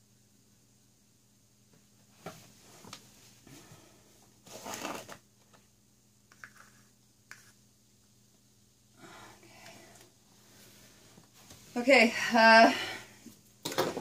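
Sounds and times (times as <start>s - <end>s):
faint steady hum: 0.0s - 14.0s
crinkling scrape: 4.4s - 5.2s.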